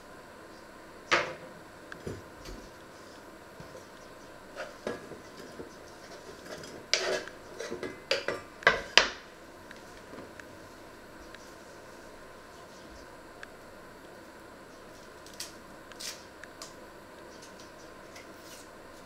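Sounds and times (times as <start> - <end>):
knife scraping onion into saucepan: 6.4 - 7.8.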